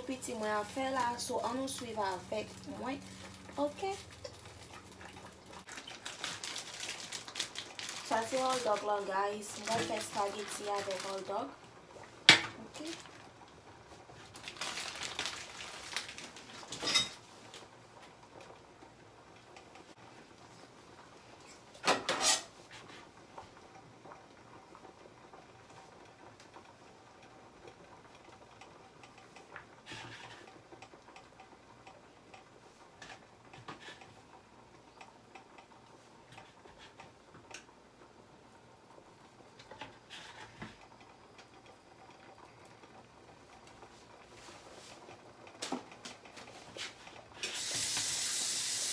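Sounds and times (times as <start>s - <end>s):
plastic packaging crinkling: 1.7s - 11.4s, 14.2s - 16.9s.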